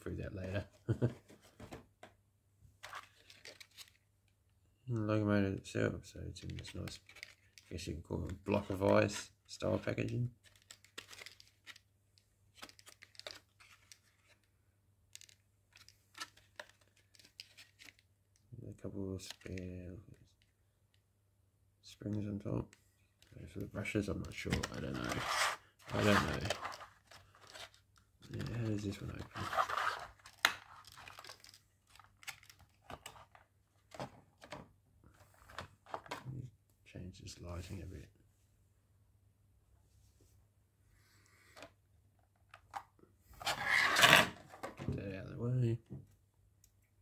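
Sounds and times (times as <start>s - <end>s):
plastic packaging clicks and crinkles: 10.4s - 11.8s, 12.6s - 14.4s, 29.5s - 33.4s.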